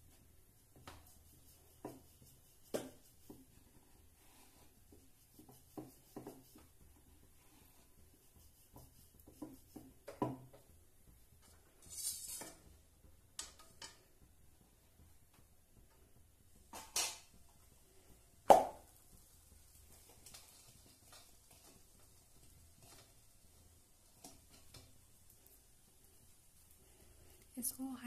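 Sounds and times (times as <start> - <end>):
rolling pin rubbing on dough: 0.0 - 12.8
dough hissing in hot pan: 0.0 - 13.0, 16.1 - 27.5.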